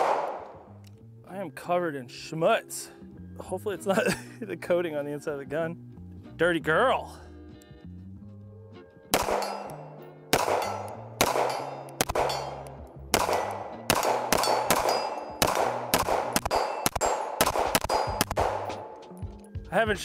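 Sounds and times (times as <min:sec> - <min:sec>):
pistol shots: 0:00.0 - 0:00.6, 0:09.1 - 0:19.0
steel targets clanging: 0:10.6 - 0:12.7, 0:14.4 - 0:15.4.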